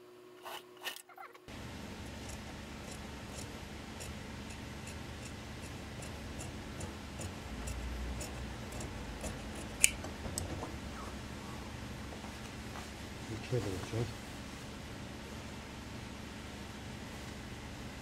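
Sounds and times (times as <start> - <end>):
shears cutting fabric: 2.1 - 10.0.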